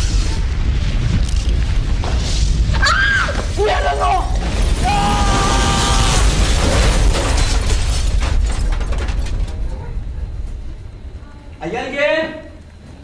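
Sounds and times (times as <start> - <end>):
deep rumbling explosion: 4.2 - 11.2.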